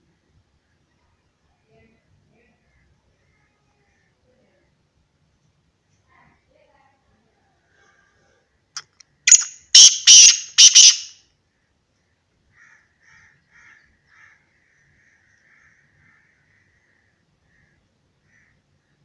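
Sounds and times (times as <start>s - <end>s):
bird giving loud harsh call: 9.3s - 11.1s.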